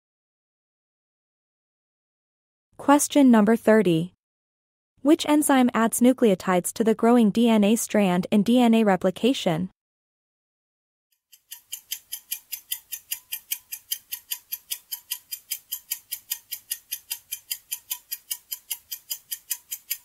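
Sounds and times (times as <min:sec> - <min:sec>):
fast clock-like ticking: 0:11.3 - 0:20.0.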